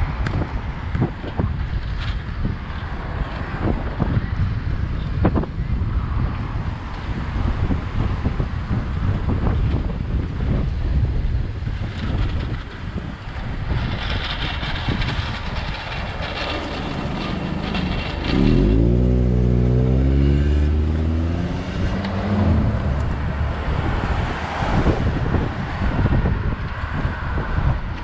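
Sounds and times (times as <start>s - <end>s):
wind on microphone: 0.0s - 28.0s
car engine passing by: 15.0s - 26.3s.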